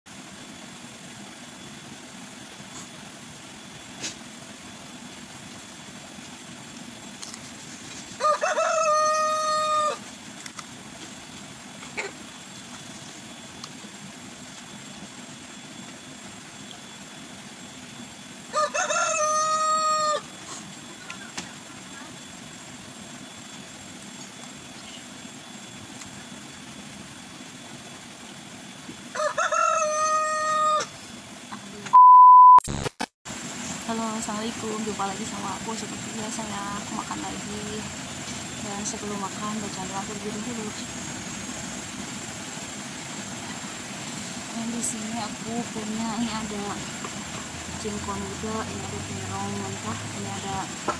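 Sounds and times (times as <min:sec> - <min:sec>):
outdoor background hiss: 0:00.1 - 0:31.9, 0:33.3 - 0:50.9
rooster crowing: 0:08.1 - 0:10.1, 0:18.5 - 0:20.4, 0:29.1 - 0:31.0
low background drone: 0:33.3 - 0:50.9.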